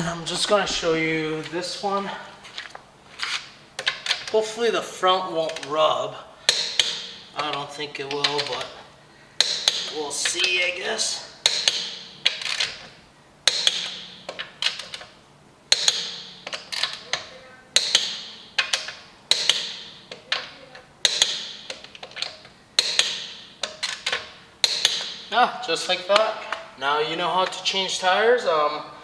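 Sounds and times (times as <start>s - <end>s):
torque wrench clicking: 15.7s - 25.3s.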